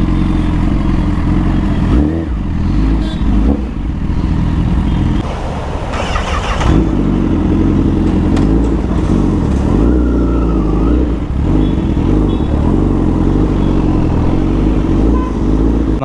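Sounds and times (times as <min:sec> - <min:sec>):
motorcycle engine at low revs: 0:00.0 - 0:10.2.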